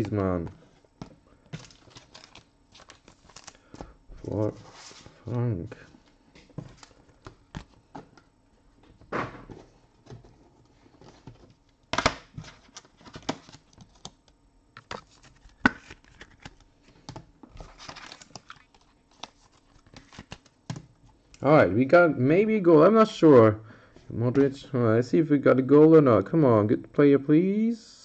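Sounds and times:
plastic sleeves crinkling: 0:01.5 - 0:05.3, 0:17.6 - 0:20.6.

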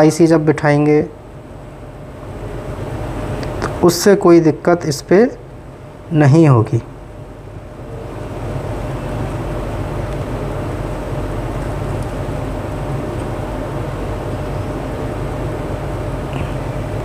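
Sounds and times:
faint steady whine: 0:00.0 - 0:17.0
motor humming: 0:06.9 - 0:17.0.

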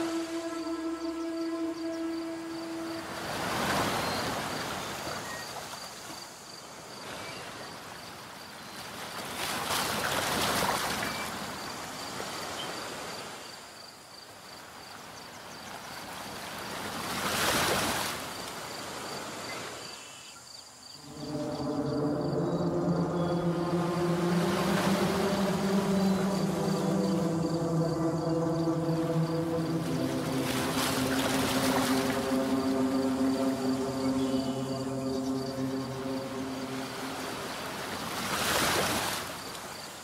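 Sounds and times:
background music: 0:00.0 - 0:04.4, 0:21.0 - 0:38.3
waves washing in: 0:00.0 - 0:05.1, 0:21.0 - 0:39.7.

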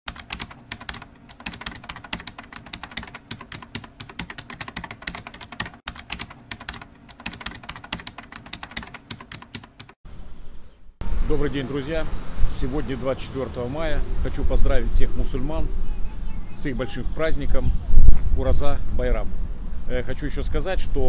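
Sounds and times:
keyboard typing clicks: 0:00.1 - 0:10.0.

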